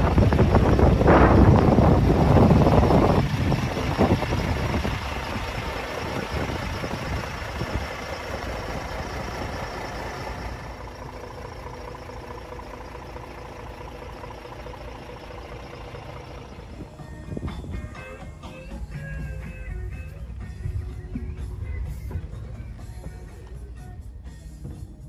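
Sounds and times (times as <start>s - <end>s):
wind gusts on microphone: 0.0s - 8.0s
diesel truck engine idling: 0.0s - 25.0s.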